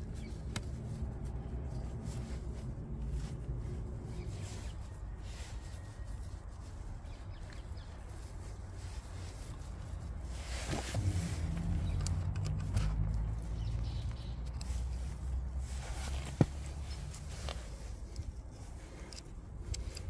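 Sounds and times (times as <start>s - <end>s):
fabric rustling and rubbing: 0.0s - 20.0s
low rumble: 11.0s - 14.2s.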